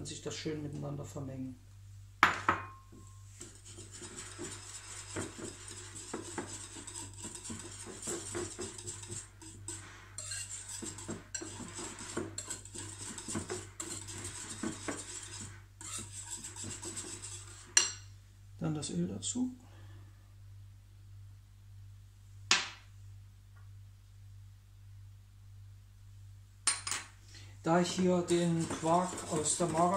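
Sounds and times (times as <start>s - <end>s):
whisk scraping in glass bowl: 3.0s - 18.1s, 27.7s - 29.9s.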